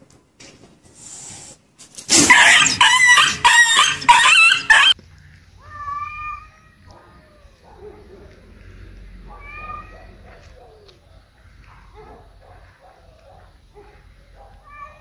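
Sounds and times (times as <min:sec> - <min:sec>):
loud animal call: 0:02.1 - 0:05.0
fainter rising and falling call: 0:02.2 - 0:05.0.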